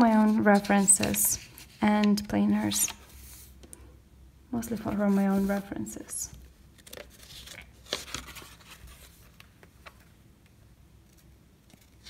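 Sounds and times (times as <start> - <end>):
paper pages turning: 0.0 - 3.5, 4.8 - 5.8, 6.8 - 10.1, 11.1 - 12.0.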